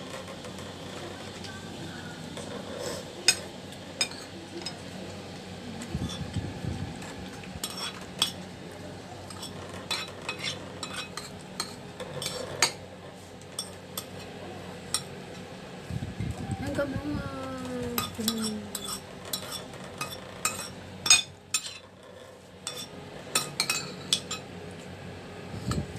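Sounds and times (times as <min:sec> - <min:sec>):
spoon scraping ceramic dish: 0:09.3 - 0:12.8, 0:18.0 - 0:24.4.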